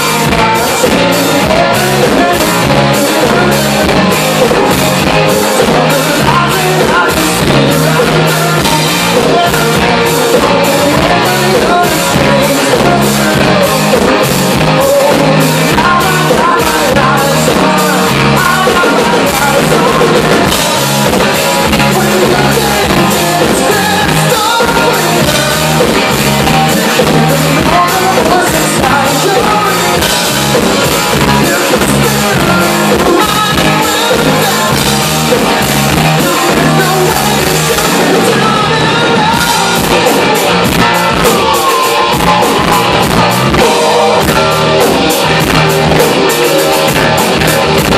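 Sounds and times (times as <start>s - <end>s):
bass guitar: 0.0s - 47.9s
drum kit with cymbal hits: 0.0s - 47.9s
electric guitars: 0.0s - 47.9s.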